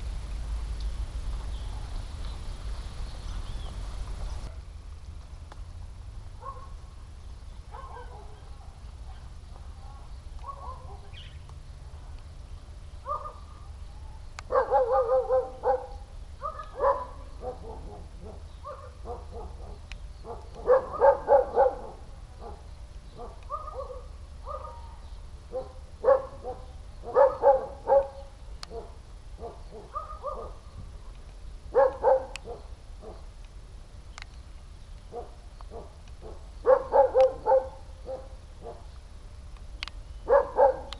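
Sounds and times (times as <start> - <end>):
steady low rumble: 0.0 - 40.9
dog barking: 6.4 - 6.8, 7.7 - 11.2, 13.0 - 13.5, 14.5 - 22.6, 23.2 - 30.6, 31.7 - 33.3, 35.1 - 38.9, 40.3 - 40.9.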